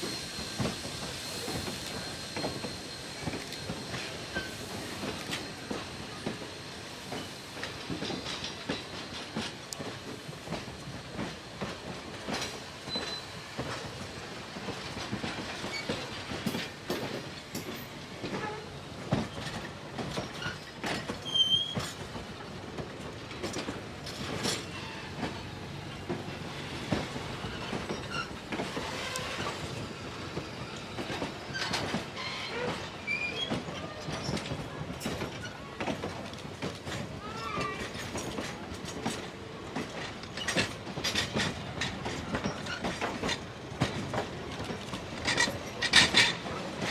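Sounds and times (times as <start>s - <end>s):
high wheel squeals: 0.0s - 5.8s, 27.4s - 34.1s
train wheels clicking over rail joints: 0.0s - 46.9s.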